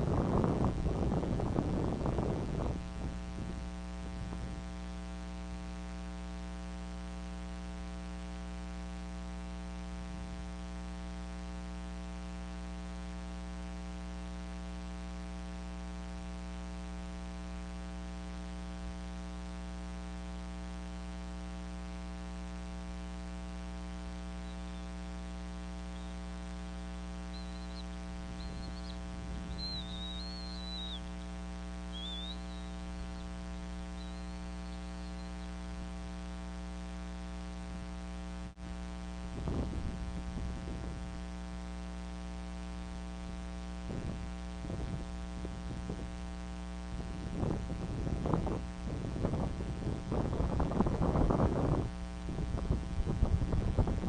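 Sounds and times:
electrical hum: 0.0 - 54.0
high chirping bird calls: 24.4 - 24.9, 25.9 - 26.2, 27.3 - 31.3, 31.9 - 35.5.

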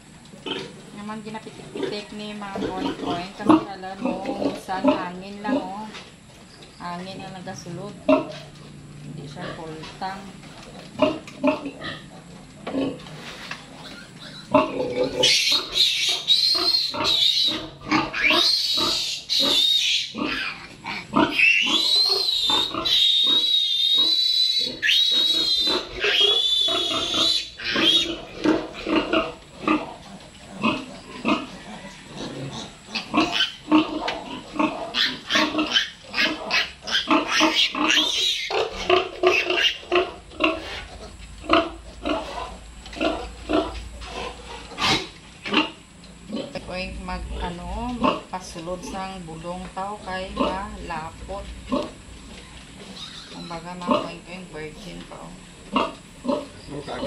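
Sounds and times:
piglet grunts and squeaks: 13.8 - 29.9, 32.4 - 39.8, 52.4 - 53.6
piglet squealing: 13.8 - 29.9, 32.5 - 39.9, 52.8 - 53.6.

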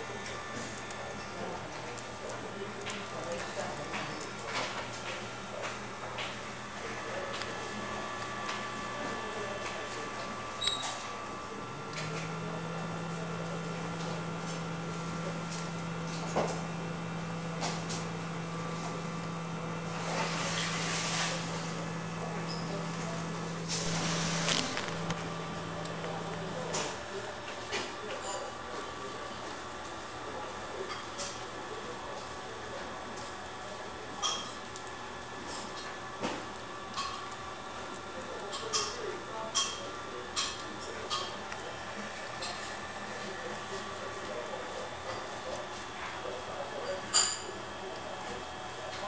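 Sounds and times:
dispenser motor humming: 0.0 - 49.0
motor whirring: 4.2 - 28.0.

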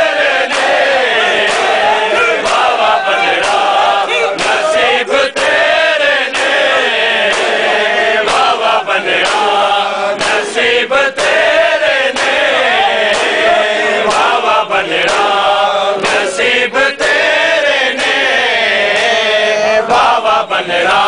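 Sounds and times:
men chanting in unison: 0.0 - 21.0
hands slapping chests: 0.4 - 10.6, 11.2 - 16.4.

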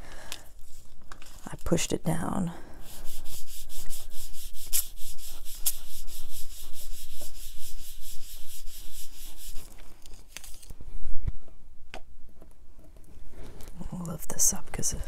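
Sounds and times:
foam tool scrubbing on paper: 2.8 - 9.8.

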